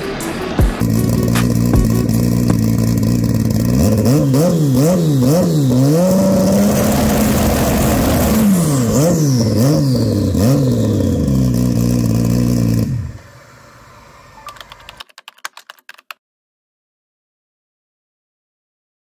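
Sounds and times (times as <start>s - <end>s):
motorcycle engine revving: 0.7s - 13.3s
typewriter-style clicks: 14.4s - 16.2s.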